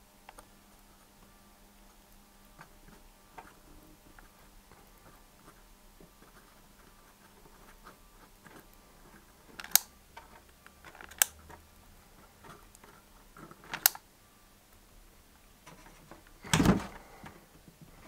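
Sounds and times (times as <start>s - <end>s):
faint handling noise: 0.3s - 14.0s, 15.6s - 18.0s
sharp clicks: 9.6s - 9.9s, 10.6s - 11.4s, 13.7s - 14.0s.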